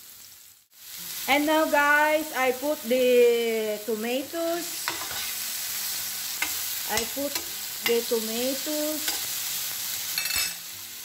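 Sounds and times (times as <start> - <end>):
vegetables sizzling in oil: 0.0 - 11.0
spoon scraping pan: 4.7 - 5.5, 6.2 - 8.3, 9.0 - 9.5
spoon clinking against pan: 6.4 - 8.1, 9.0 - 9.3, 10.2 - 10.6.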